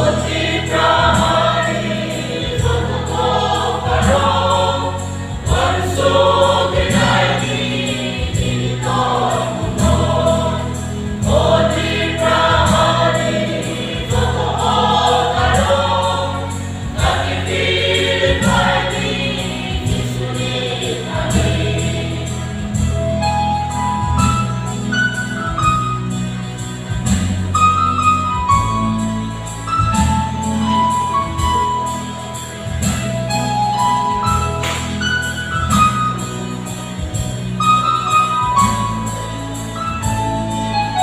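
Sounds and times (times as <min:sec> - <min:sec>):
choir singing a hymn: 0:00.0 - 0:23.5.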